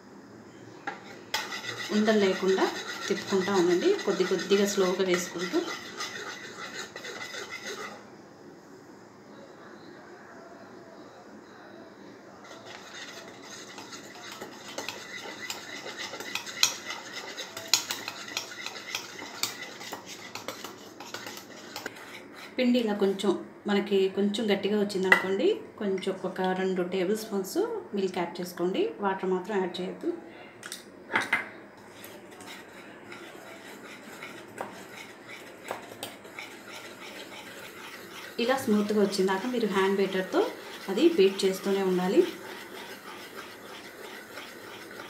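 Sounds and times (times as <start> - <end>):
wire whisk beating batter in bowl: 1.0 - 8.0, 12.4 - 22.6, 31.9 - 45.0
whisk wires clicking on bowl: 12.6 - 21.9.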